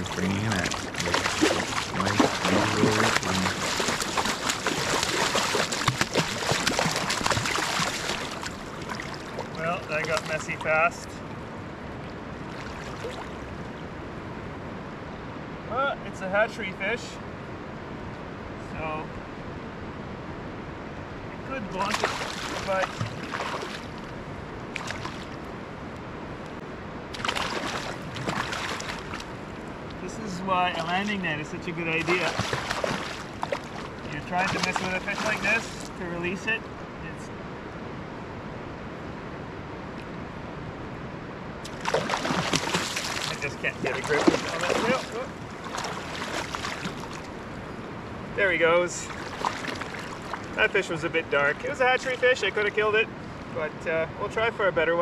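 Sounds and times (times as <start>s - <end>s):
fish thrashing and splashing water: 0.0s - 10.4s, 21.8s - 24.1s, 24.7s - 25.4s, 27.2s - 29.5s, 31.9s - 36.0s, 41.6s - 47.4s, 49.1s - 50.6s
river rushing: 0.0s - 14.4s, 21.3s - 26.3s, 26.9s - 37.6s, 40.9s - 52.6s.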